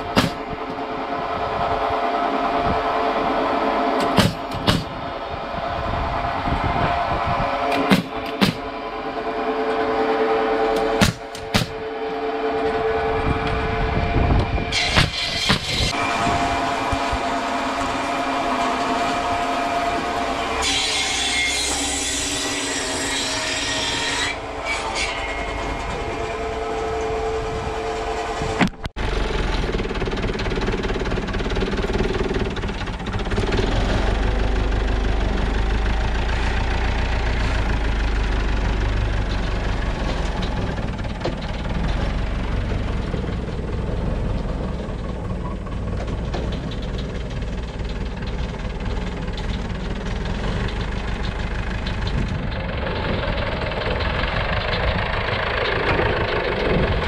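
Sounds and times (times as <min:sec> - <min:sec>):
whining machine: 0:00.0 - 0:57.0
deep engine hum: 0:25.3 - 0:57.0.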